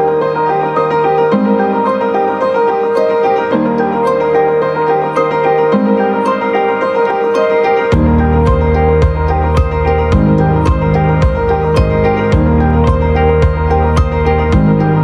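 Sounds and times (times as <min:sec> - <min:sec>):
keyboard tune with bass: 0:00.0 - 0:15.0.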